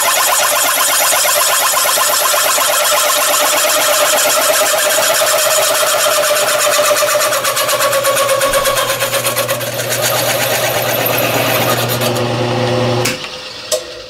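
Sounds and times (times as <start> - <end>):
hole cutter chattering screech: 0.0 - 12.4
machine motor hum: 0.0 - 14.0.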